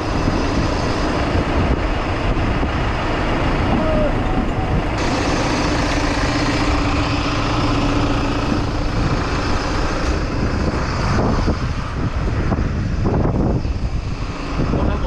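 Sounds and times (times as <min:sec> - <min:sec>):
diesel engines idling: 0:00.0 - 0:15.0.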